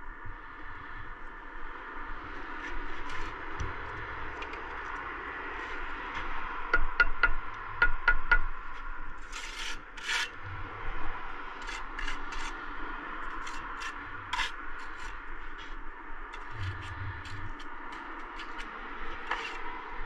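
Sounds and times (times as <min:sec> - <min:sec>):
trowel scraping mortar: 0:03.0 - 0:03.3, 0:09.2 - 0:10.4, 0:11.6 - 0:12.6, 0:13.2 - 0:15.2, 0:16.4 - 0:19.7
trowel tapping bricks: 0:09.2 - 0:10.3, 0:11.6 - 0:12.6, 0:13.3 - 0:15.2, 0:16.4 - 0:19.7.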